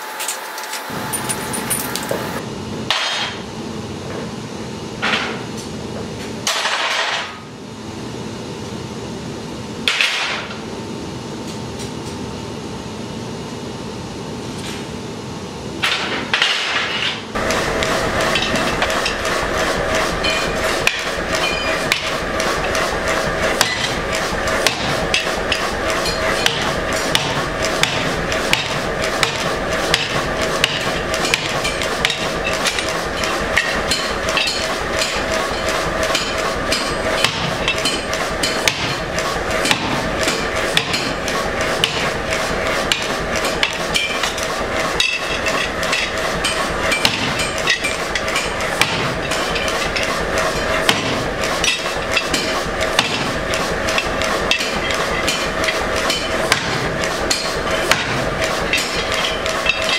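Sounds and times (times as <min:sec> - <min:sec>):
hammer striking steel: 0:15.8 - 0:19.4, 0:20.2 - 0:22.8, 0:23.6 - 0:42.2, 0:42.8 - 0:44.4, 0:45.0 - 0:59.9.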